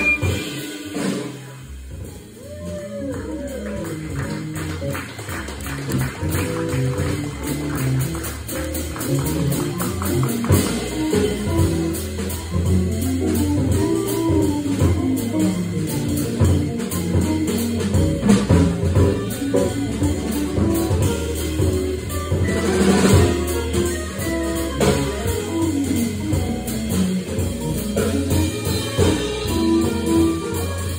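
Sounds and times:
organ playing: 0:00.0 - 0:01.1
drum cymbals: 0:00.0 - 0:04.5, 0:06.2 - 0:30.9.

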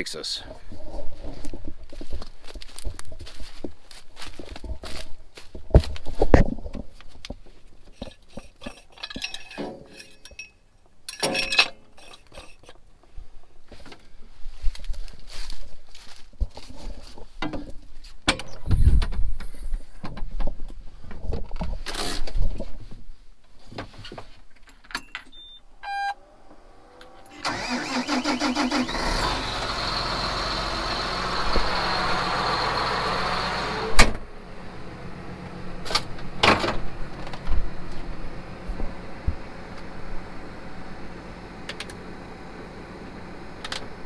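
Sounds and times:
short electronic beep: 0:25.3 - 0:26.2
tractor diesel engine starting: 0:25.4 - 0:44.0.

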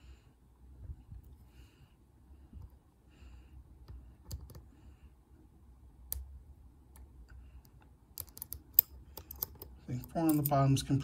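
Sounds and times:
lock pick clicking in padlock: 0:08.1 - 0:10.5.

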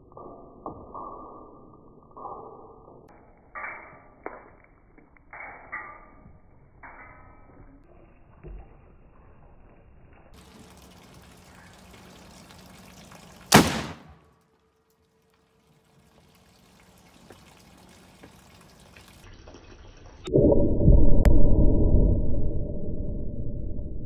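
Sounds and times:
explosion with deep rumble: 0:20.3 - 0:24.0.

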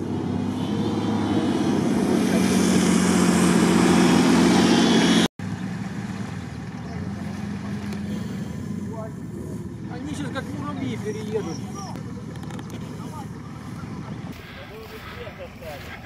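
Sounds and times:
quad bike engine running: 0:00.0 - 0:14.4
quieter engine running: 0:00.0 - 0:16.0.

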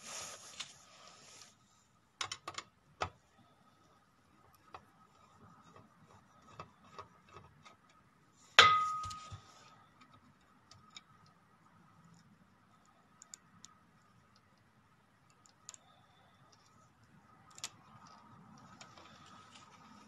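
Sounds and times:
metallic clank: 0:08.6 - 0:09.4.

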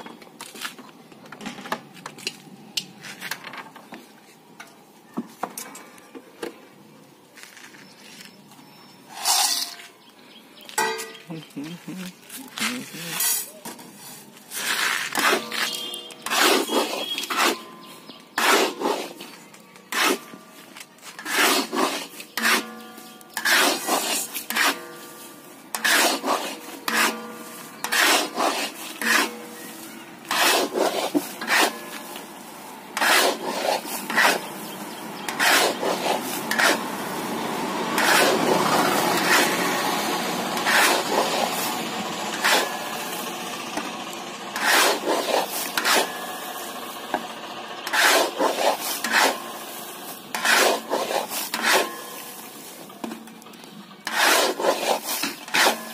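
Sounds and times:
metal scoop scraping sand in pan: 0:09.1 - 0:10.0, 0:12.6 - 0:37.2, 0:38.0 - 0:43.4, 0:44.5 - 0:53.0, 0:53.9 - 0:55.9.

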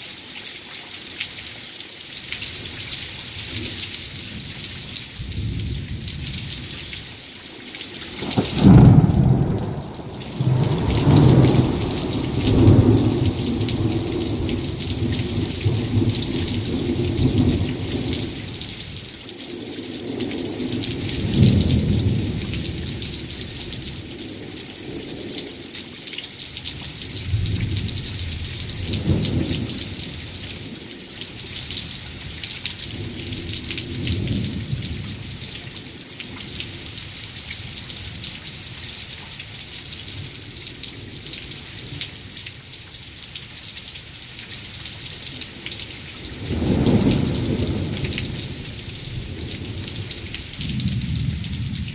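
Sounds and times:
heavy rain falling: 0:00.0 - 0:51.9
thunder rumbling: 0:08.2 - 0:19.0, 0:46.3 - 0:51.9.

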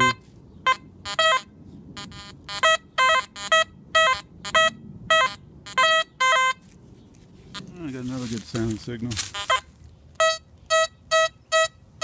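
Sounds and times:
metal detector beeping: 0:00.0 - 0:06.7, 0:09.2 - 0:11.8.

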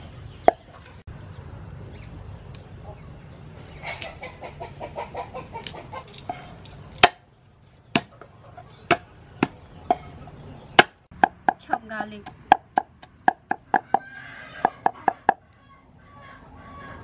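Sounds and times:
hen clucking: 0:02.8 - 0:06.6, 0:08.0 - 0:17.0.

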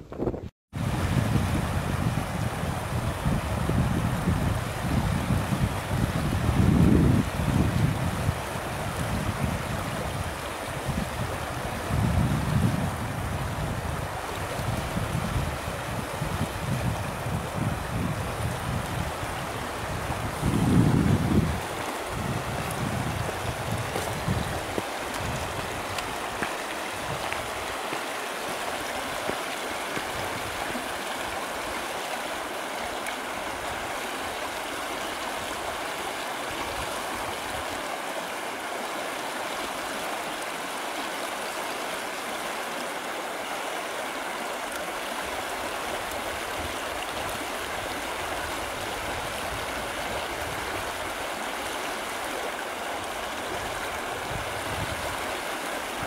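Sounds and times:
wind buffeting microphone: 0:00.0 - 0:32.1, 0:46.0 - 0:51.2, 0:53.0 - 0:56.0
river rushing over stones: 0:00.8 - 0:56.0.

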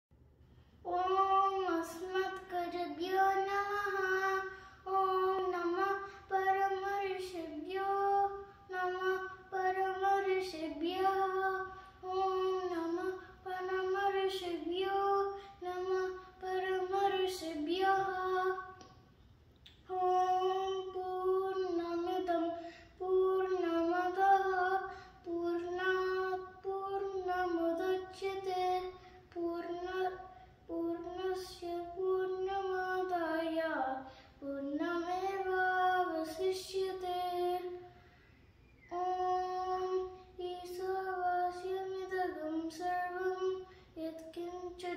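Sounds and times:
boy chanting: 0:00.8 - 0:18.9, 0:19.7 - 0:38.0, 0:38.8 - 0:44.9.

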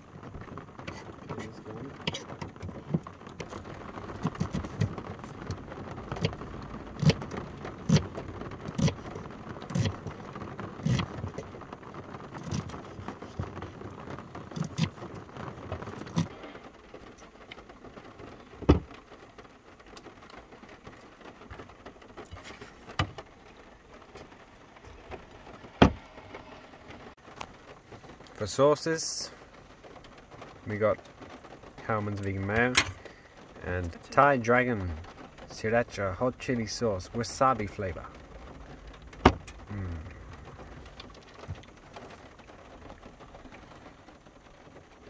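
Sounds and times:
rain pattering on roof: 0:00.0 - 0:45.0
knife chopping on wooden board: 0:04.2 - 0:05.0.

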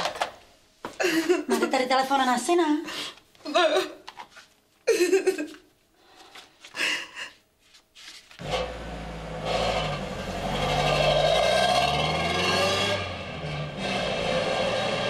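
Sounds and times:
van engine running: 0:08.4 - 0:12.1.

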